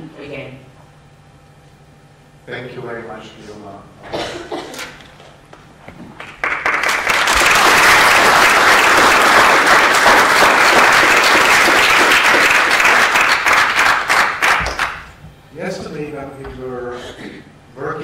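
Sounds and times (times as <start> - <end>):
people applauding: 6.2 - 15.1.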